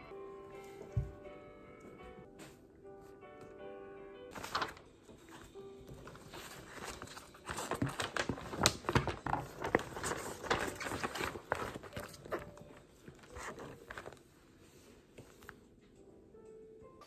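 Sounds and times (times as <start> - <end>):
paper rustling and crackling: 4.3 - 15.6.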